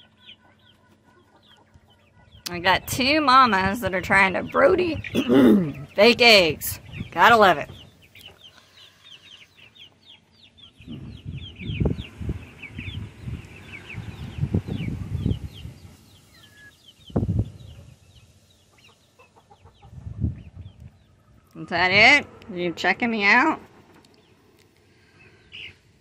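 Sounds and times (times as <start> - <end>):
chicks peeping: 0.0 - 25.8
low rumbles and thuds: 10.8 - 13.4.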